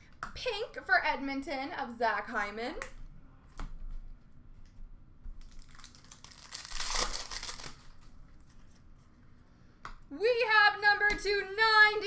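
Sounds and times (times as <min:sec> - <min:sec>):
card pack wrapper crinkling: 0:05.4 - 0:08.8.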